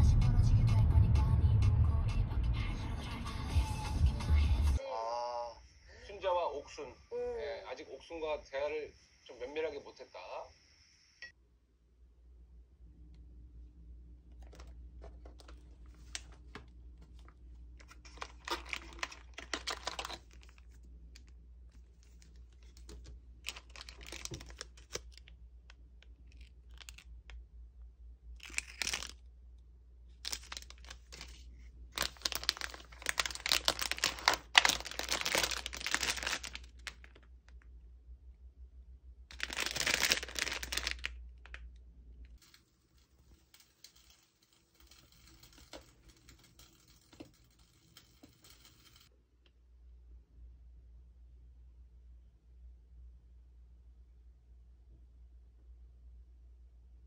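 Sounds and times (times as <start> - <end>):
low steady hum: 10.8 - 57.0
plastic crinkling: 14.4 - 25.4, 26.0 - 27.4, 28.4 - 29.2, 30.2 - 37.3, 39.3 - 41.6
cardboard tearing and rustling: 18.0 - 20.6, 23.5 - 25.2, 28.4 - 29.1, 32.0 - 36.9, 39.3 - 41.0.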